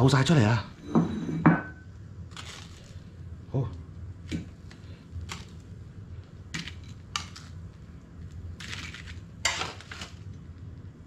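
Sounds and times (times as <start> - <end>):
metal utensil scraping: 9.4 - 10.2.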